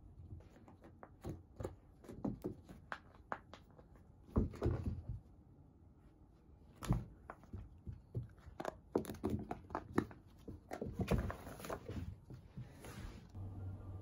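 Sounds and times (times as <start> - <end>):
puppy paws and ball tapping on carpet: 0.3 - 5.2, 6.8 - 12.7.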